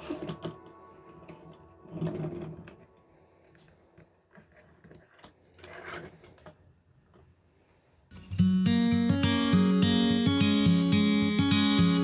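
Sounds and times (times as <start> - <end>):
acoustic guitar music: 8.1 - 12.0.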